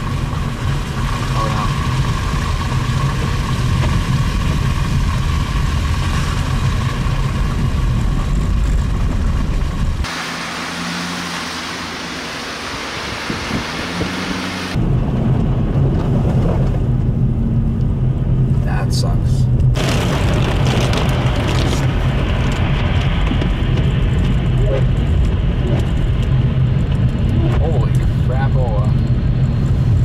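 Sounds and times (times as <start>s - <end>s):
tyres and engine rumbling: 0.0s - 30.0s
road hiss: 10.0s - 14.8s.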